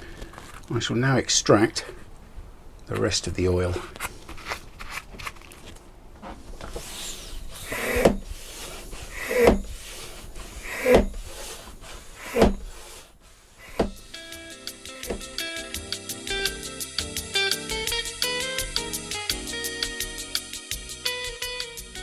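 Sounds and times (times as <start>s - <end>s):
hand pump strokes: 6.6s - 13.9s.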